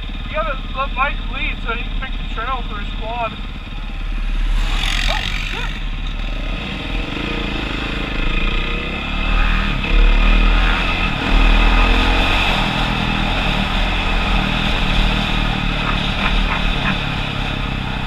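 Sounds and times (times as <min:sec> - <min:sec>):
wind and tyre noise: 0:00.0 - 0:18.0
dirt bike engine revving: 0:00.3 - 0:18.0.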